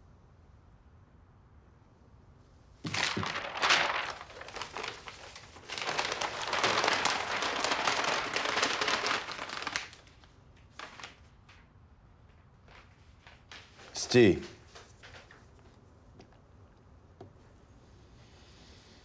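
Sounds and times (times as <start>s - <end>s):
paper rustling and crinkling: 2.8s - 16.4s.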